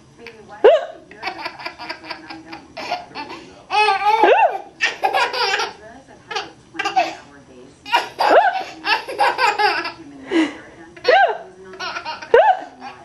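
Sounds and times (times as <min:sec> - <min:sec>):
baby giggling: 0:01.2 - 0:07.2, 0:07.9 - 0:10.0, 0:11.0 - 0:13.0.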